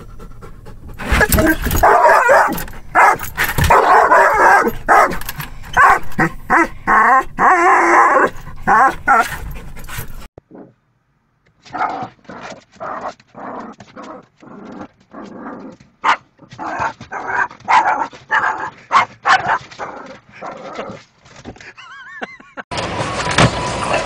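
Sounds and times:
dog barking in rapid bursts: 1.2s - 9.4s, 16.0s - 20.0s.

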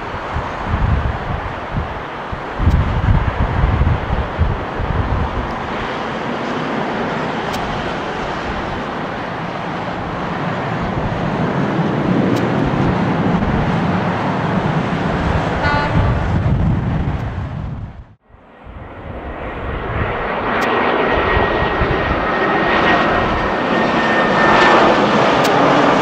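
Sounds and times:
jet engines roaring: 0.0s - 26.0s
horn toot: 15.6s - 16.4s.

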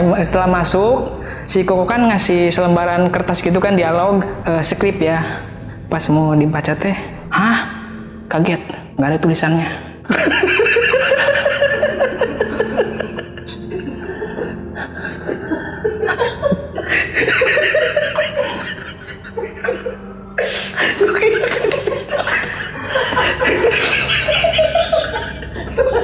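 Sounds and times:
man laughing heartily: 10.1s - 26.0s.

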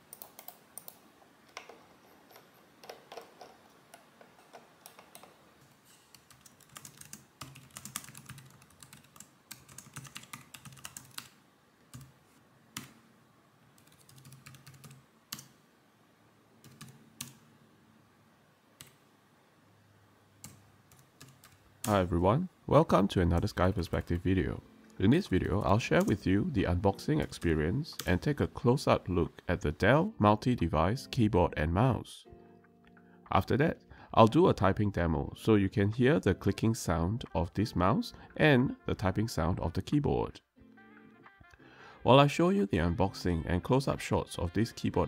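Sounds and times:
soft keyboard typing: 0.0s - 13.0s, 13.8s - 15.6s, 16.6s - 17.4s, 18.8s - 19.0s, 20.4s - 22.1s, 25.6s - 26.3s.

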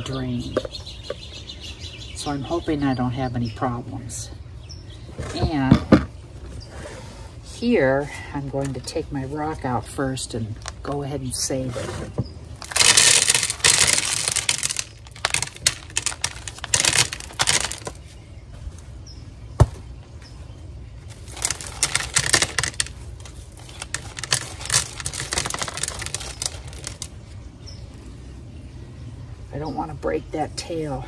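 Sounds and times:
small rocks clattering onto a tray: 12.6s - 18.0s, 21.1s - 27.1s.

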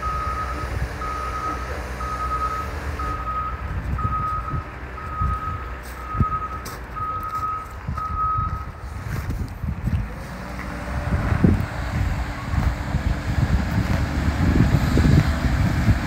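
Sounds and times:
reversing alarm beeping: 0.0s - 8.7s
diesel engine running: 0.0s - 16.0s.

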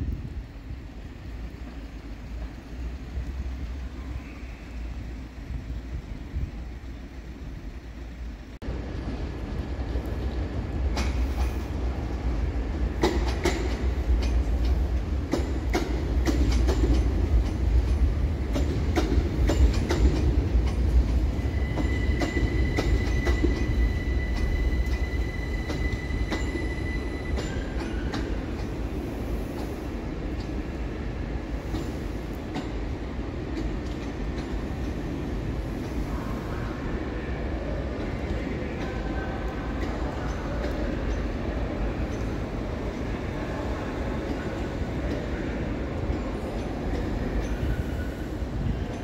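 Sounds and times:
train running low rumble: 0.0s - 49.0s
wheels clacking over rail joints: 9.8s - 36.0s
high wheel squeal: 21.3s - 28.3s.

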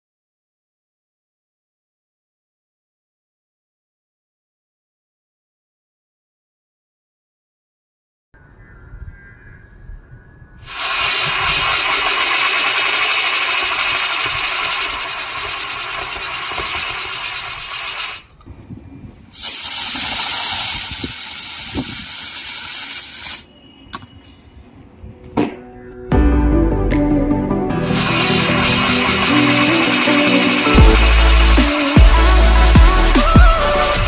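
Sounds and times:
rocket motors hissing: 10.7s - 18.3s, 19.3s - 23.5s, 27.8s - 34.0s
sharp cracks: 10.7s - 18.3s.

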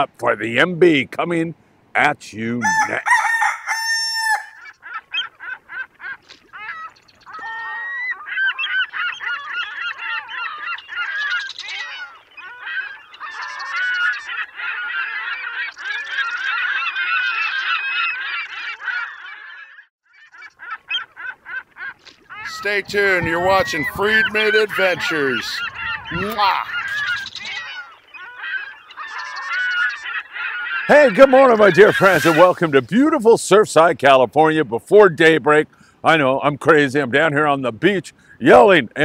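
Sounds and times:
flock of birds calling: 2.6s - 33.0s.

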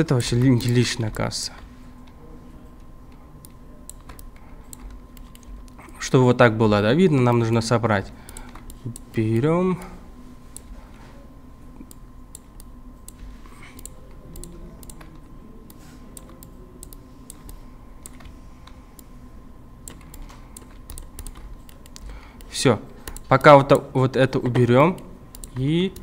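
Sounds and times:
faint steady hum: 0.0s - 26.0s
keyboard and mouse clicks: 3.4s - 5.8s, 11.8s - 19.1s, 19.8s - 23.5s, 24.4s - 26.0s.

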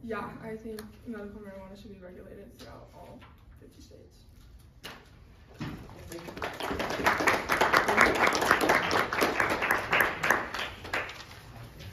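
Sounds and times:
audience clapping: 6.0s - 11.6s.

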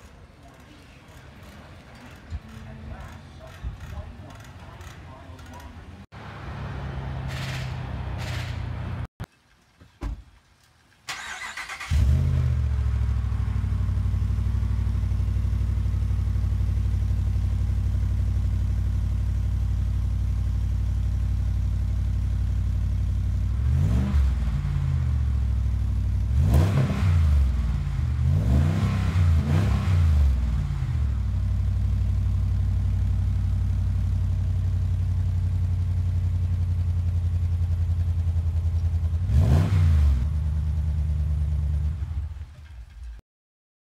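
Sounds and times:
engine cranking: 0.0s - 5.9s, 7.2s - 9.5s, 11.0s - 12.2s
engine revving: 6.1s - 9.1s, 11.1s - 15.9s, 23.4s - 31.5s, 39.0s - 42.5s.

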